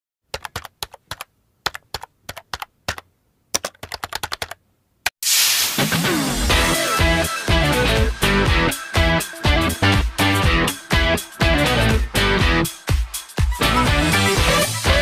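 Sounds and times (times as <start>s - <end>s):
keyboard typing: 0.3s - 4.6s
music: 5.8s - 15.0s.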